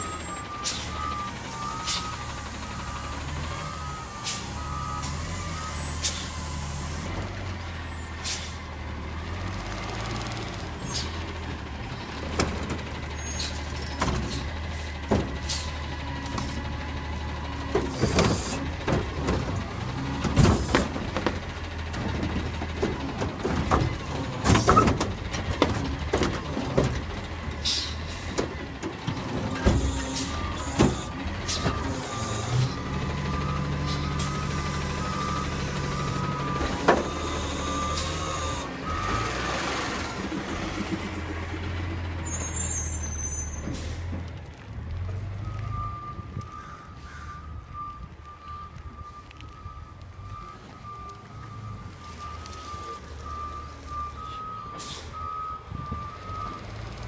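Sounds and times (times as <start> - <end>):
garbage truck diesel engine: 0.0 - 57.0
cart clanking and banging: 9.3 - 46.0.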